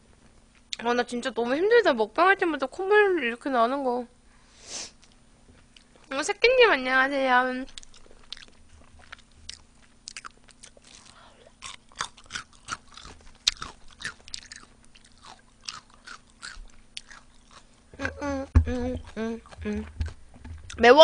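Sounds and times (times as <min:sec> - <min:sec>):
crunchy chewing of fried chicken: 0:07.7 - 0:18.3.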